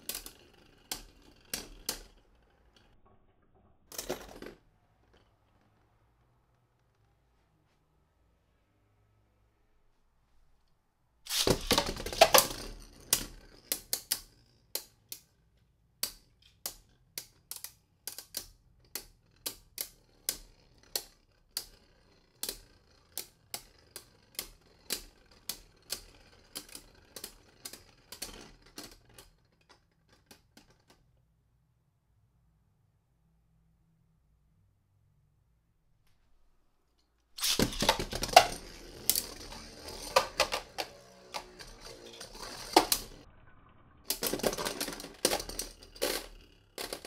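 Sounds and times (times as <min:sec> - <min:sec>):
spinning tops clattering: 0:11.3 - 0:13.9, 0:37.4 - 0:43.2, 0:44.1 - 0:47.0
spinning tops clacking together: 0:11.3 - 0:15.0, 0:37.4 - 0:43.2, 0:44.1 - 0:47.0.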